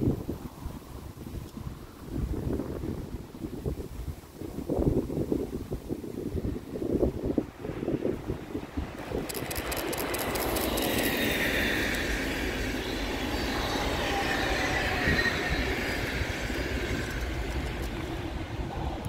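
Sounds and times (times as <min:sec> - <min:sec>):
wheel-on-rail rushing: 0:07.8 - 0:19.0
train wheels clicking on rails: 0:08.6 - 0:19.0
faint high whine: 0:08.8 - 0:19.0.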